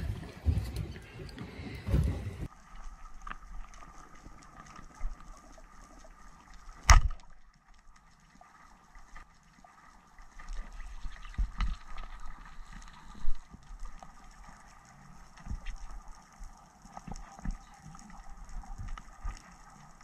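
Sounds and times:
speargun firing underwater: 6.8 - 7.3.

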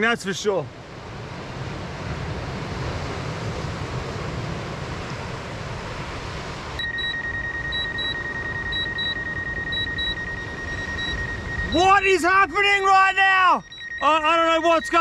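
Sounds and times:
remote controller beeping: 6.8 - 15.0
steady high tone: 6.8 - 15.0.

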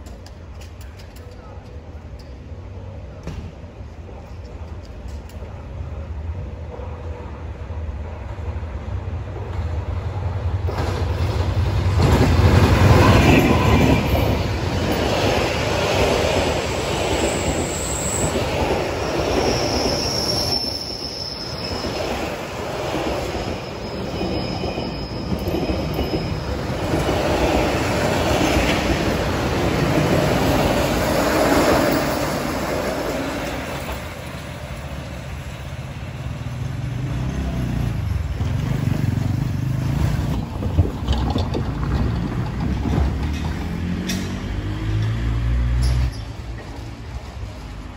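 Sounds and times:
train wheels rumbling on rails: 0.0 - 47.9
diesel locomotive passing: 1.4 - 47.9
high wheel squeals: 16.6 - 27.1.

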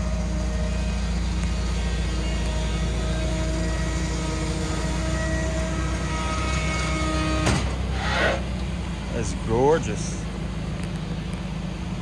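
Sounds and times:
vehicle engine idling: 0.0 - 12.0.

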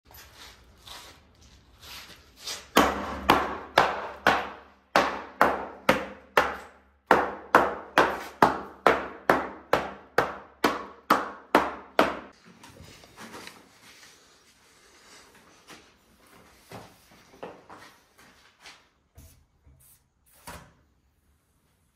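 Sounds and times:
metal plate striking foam board: 2.7 - 12.3.

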